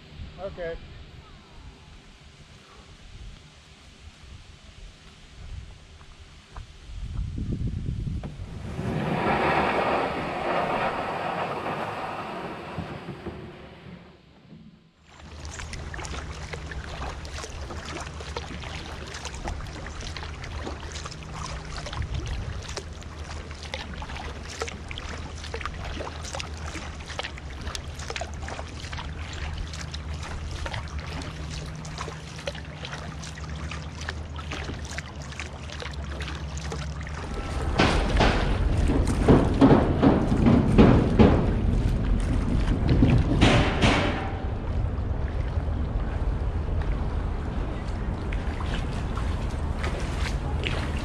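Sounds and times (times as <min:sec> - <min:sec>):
low hum: 0:00.0 - 0:51.0
water splashing around kayak: 0:08.0 - 0:51.0
loud rushing water: 0:15.1 - 0:51.0.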